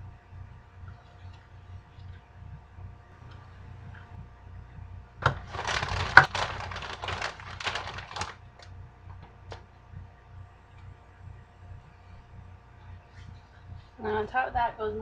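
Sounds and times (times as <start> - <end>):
plastic bag crinkling: 5.2 - 8.7.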